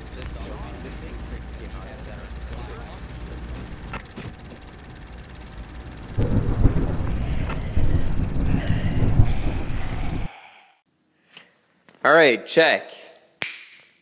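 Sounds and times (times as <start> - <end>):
noise bed: 0.0 - 10.8
thunder rumbling: 6.1 - 10.3.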